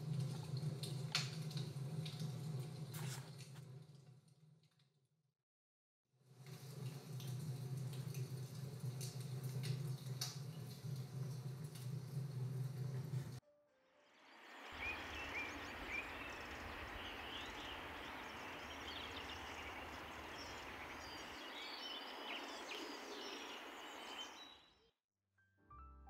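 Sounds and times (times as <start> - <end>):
background noise wash: 14.2 - 24.4
bird chirps: 14.3 - 24.8.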